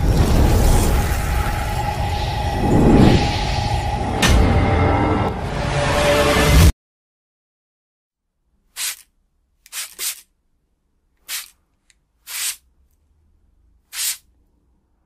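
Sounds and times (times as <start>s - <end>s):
hand sweeping sand: 12.2s - 12.6s, 13.9s - 14.2s.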